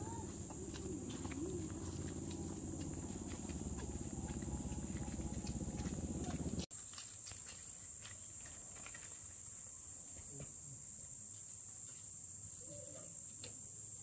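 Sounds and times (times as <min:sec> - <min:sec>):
insects chirring: 0:00.0 - 0:06.7.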